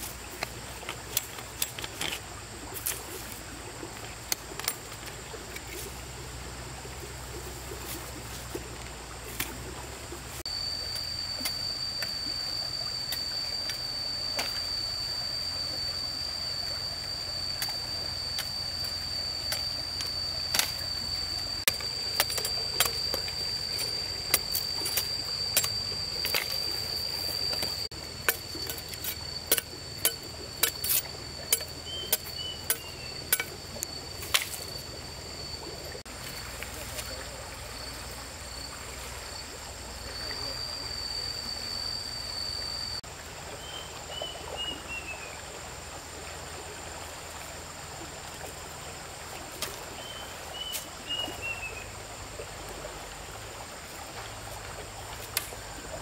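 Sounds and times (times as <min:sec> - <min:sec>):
high-pitched whine: 0:00.0 - 0:43.0
running water noise: 0:00.0 - 0:56.0.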